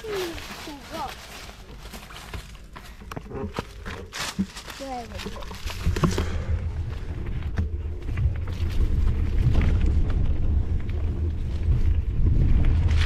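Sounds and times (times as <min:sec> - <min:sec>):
bike knocks and rattles: 0:01.8 - 0:13.0
wind rumble on microphone: 0:03.2 - 0:13.0.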